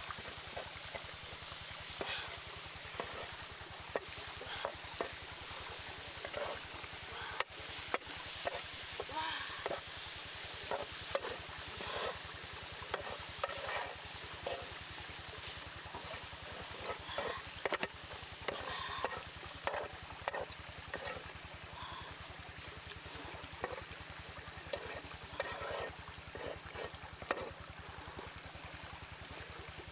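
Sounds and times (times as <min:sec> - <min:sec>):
food sizzling: 0:00.0 - 0:21.3, 0:23.6 - 0:23.9, 0:24.7 - 0:27.5
wooden spatula scraping a pan: 0:02.0 - 0:05.2, 0:06.1 - 0:06.6, 0:07.4 - 0:14.8, 0:16.0 - 0:21.3, 0:23.6 - 0:23.9, 0:24.7 - 0:27.6.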